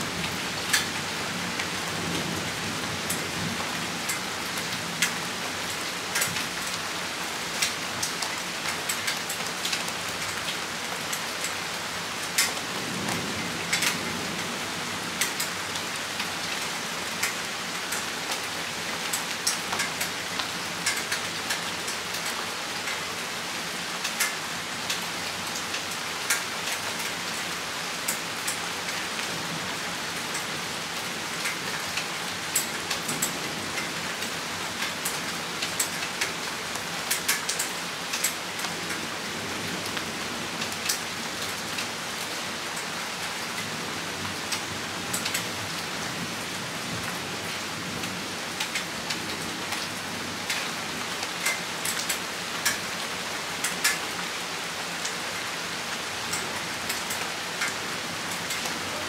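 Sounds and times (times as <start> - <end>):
rain hissing: 23.4 - 59.0.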